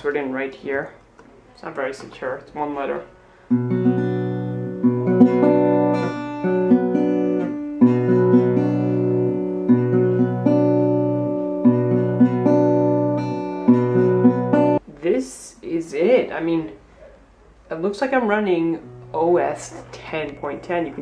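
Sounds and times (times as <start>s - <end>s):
acoustic guitar strumming chords: 3.2s - 14.8s, 18.7s - 21.0s.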